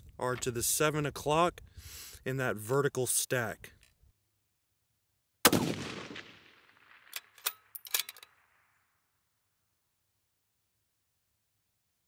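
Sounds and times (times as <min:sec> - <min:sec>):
rifle shot: 0:05.4 - 0:08.8
rifle bolt clicks: 0:07.0 - 0:08.4.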